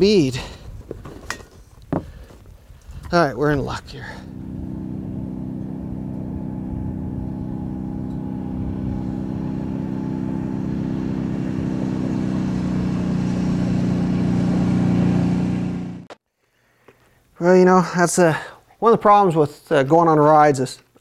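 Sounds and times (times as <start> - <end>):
atv engines running: 3.4 - 16.1.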